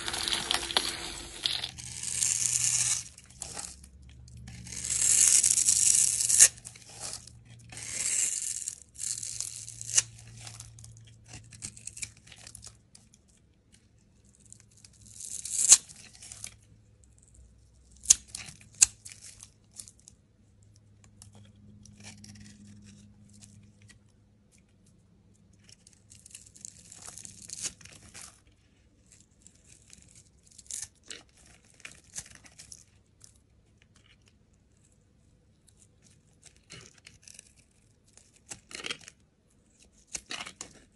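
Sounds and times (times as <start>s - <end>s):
knife scraping soap: 4.4s - 12.6s, 35.6s - 40.9s.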